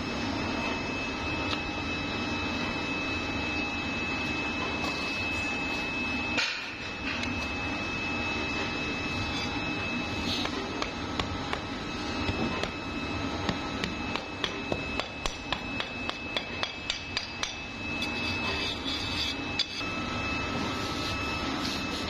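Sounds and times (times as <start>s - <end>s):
high machine whine: 0.0s - 22.0s.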